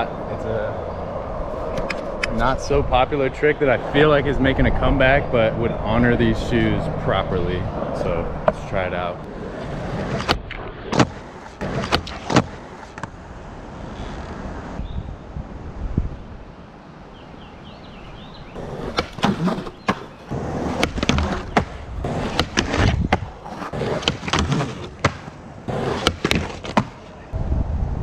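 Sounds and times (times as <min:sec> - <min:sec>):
skateboard rolling on concrete: 0:00.0 - 0:15.0, 0:17.6 - 0:28.0
skateboard clacks and knocks: 0:18.9 - 0:27.1.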